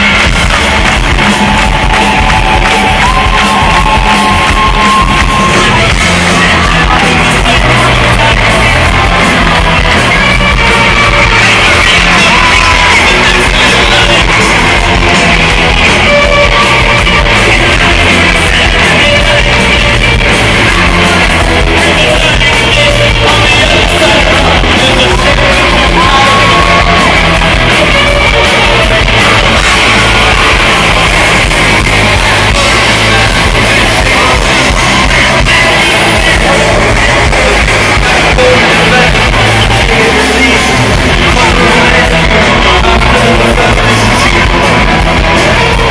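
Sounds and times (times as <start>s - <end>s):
live rock band: 0.0s - 45.9s.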